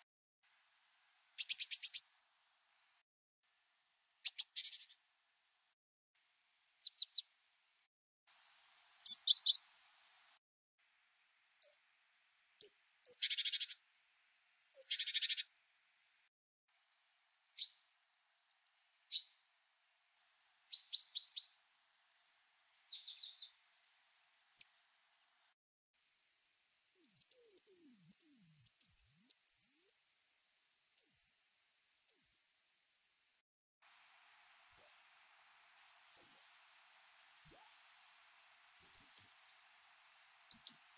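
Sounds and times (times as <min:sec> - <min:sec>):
bird calls: 0:01.4 - 0:02.0, 0:09.0 - 0:09.6, 0:12.6 - 0:13.8, 0:14.8 - 0:15.5, 0:20.7 - 0:21.6, 0:22.9 - 0:23.6, 0:34.7 - 0:35.0, 0:36.2 - 0:36.5, 0:37.4 - 0:37.8, 0:38.8 - 0:39.4, 0:40.5 - 0:40.9.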